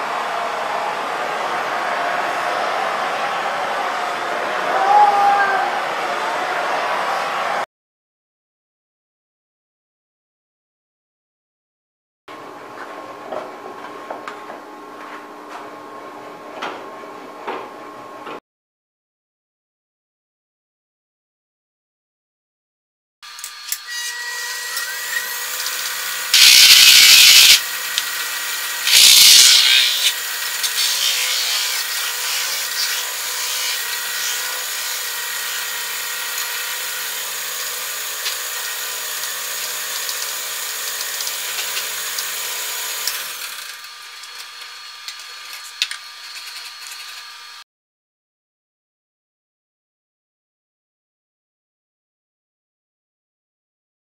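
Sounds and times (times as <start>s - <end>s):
lathe whine: 23.3s - 47.6s
tool scraping spinning metal: 28.6s - 35.6s, 38.0s - 47.4s.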